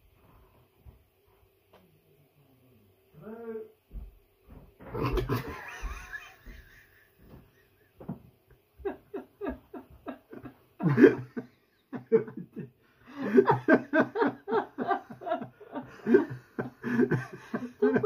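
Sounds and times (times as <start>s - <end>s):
person laughing hard: 4.9s - 8.1s, 8.8s - 18.0s.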